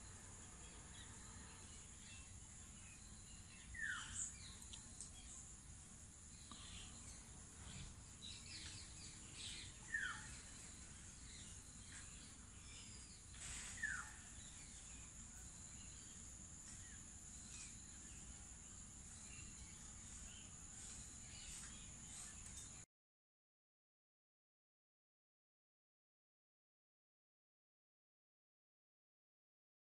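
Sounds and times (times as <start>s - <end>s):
bird chirps: 0.0s - 5.5s, 6.4s - 22.8s
short falling bird calls: 13.3s - 14.3s.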